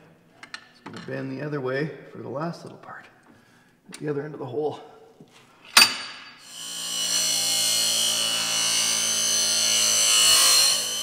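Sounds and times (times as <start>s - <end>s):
bench grinder grinding steel: 6.4s - 11.0s.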